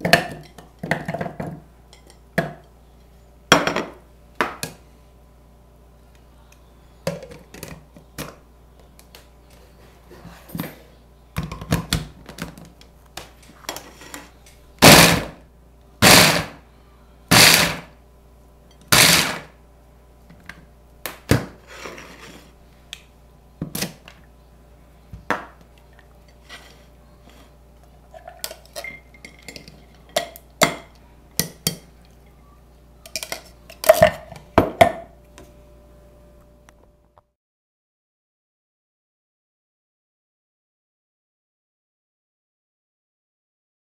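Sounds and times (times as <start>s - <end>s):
food chopper pulsing: 14.8s - 15.3s, 16.0s - 16.6s, 17.3s - 17.9s, 18.9s - 19.5s.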